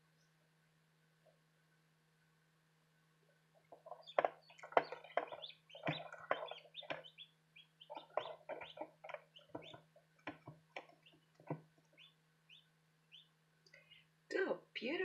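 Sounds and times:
incubator low hum: 0.0 - 14.2
chicks peeping: 3.5 - 14.1.

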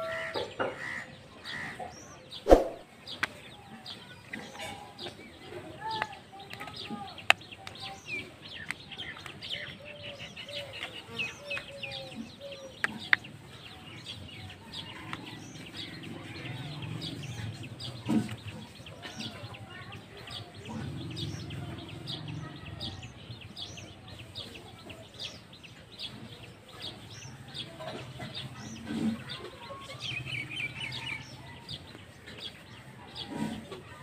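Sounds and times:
small birds chirping: 0.0 - 34.0
chickens clucking: 4.2 - 30.2.

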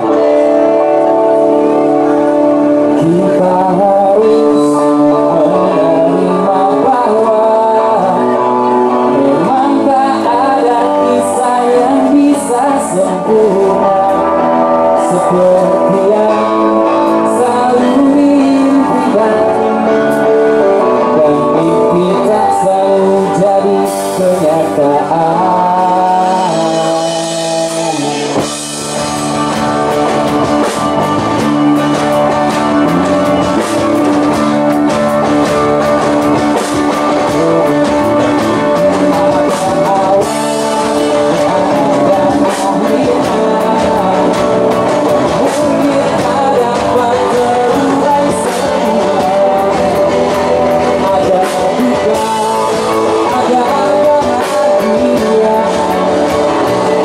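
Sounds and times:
bass guitar: 0.0 - 57.0
drum kit: 0.0 - 57.0
electric guitars: 0.0 - 57.0
keyboard: 0.0 - 57.0
person singing: 0.0 - 57.0.

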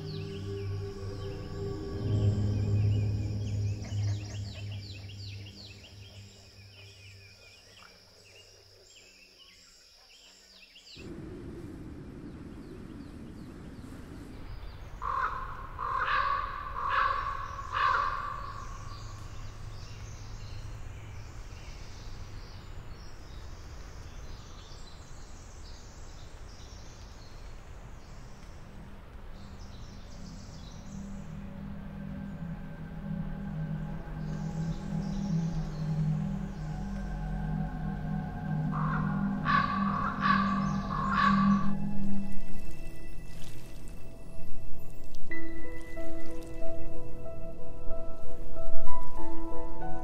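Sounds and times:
soft music: 0.0 - 7.8, 28.3 - 50.0
light bird chirps: 0.0 - 11.1
crow cawing: 15.0 - 18.9, 38.6 - 41.8
soft steady hiss: 18.6 - 39.4.

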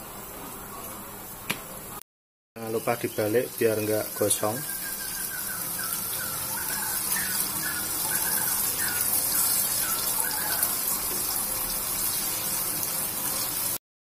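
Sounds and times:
food sizzling in hot oil: 2.6 - 13.8.

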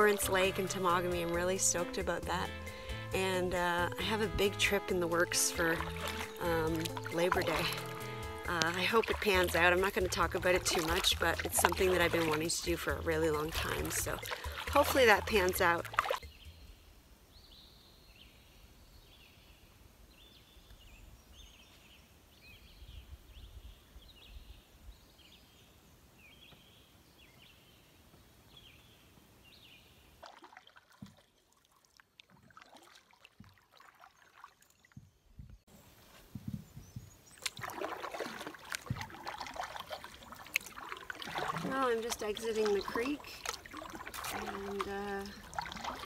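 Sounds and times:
paddle water trickling and dripping: 0.0 - 16.8, 28.2 - 35.6, 36.3 - 46.0.

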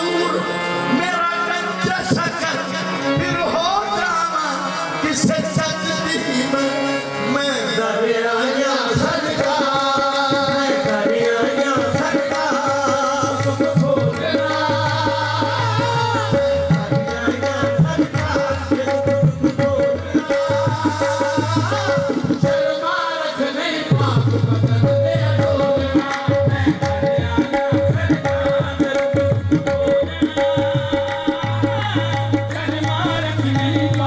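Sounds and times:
harmonium notes: 0.0 - 34.0
men singing: 0.0 - 34.0
tabla drumming: 0.0 - 34.0.

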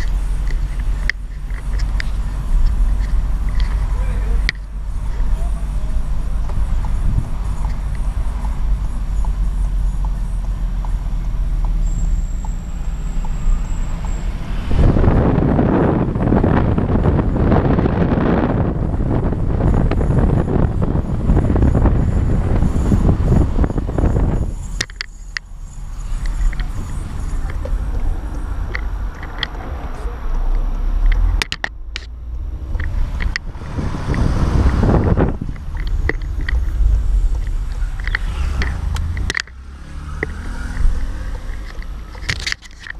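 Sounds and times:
car cabin low rumble: 0.0 - 42.9
wind and road noise: 0.0 - 42.9
sharp clicks or ticks: 35.5 - 42.9.

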